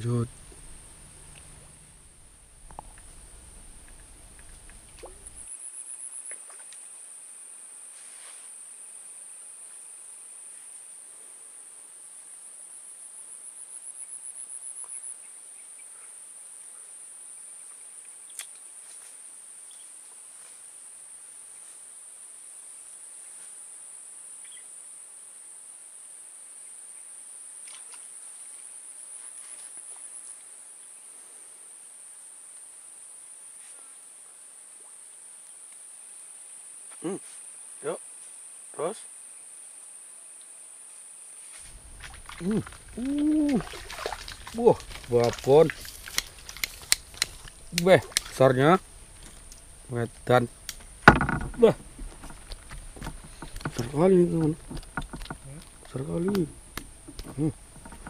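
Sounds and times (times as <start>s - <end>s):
insects trilling: 11.9s - 58.0s.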